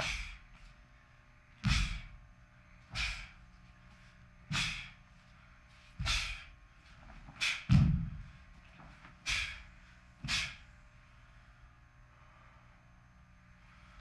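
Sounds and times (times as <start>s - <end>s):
forced breath: 0.0s - 0.4s, 2.8s - 3.4s, 4.0s - 5.0s, 6.0s - 6.6s, 9.3s - 12.9s
thump of landing: 1.6s - 2.2s, 7.2s - 9.5s.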